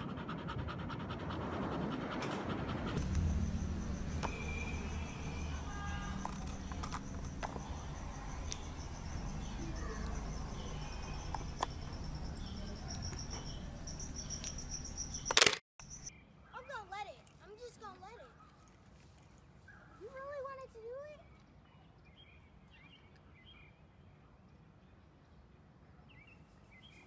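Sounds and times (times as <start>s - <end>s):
low hum: 0.0s - 16.1s
crickets chirping: 2.9s - 16.1s.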